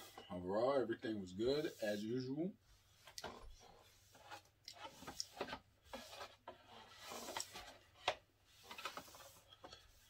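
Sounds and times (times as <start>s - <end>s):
paper napkin rubbing on table: 1.5s - 2.1s.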